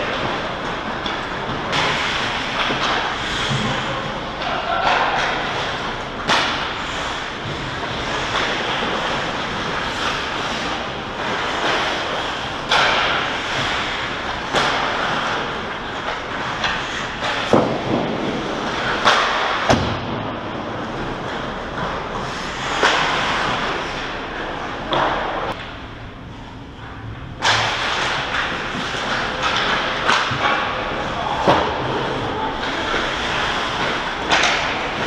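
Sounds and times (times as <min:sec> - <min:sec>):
skates scraping on ice: 0:00.0 - 0:19.7, 0:20.4 - 0:25.6, 0:27.4 - 0:35.0
sticks and pucks knocking: 0:32.6 - 0:35.0.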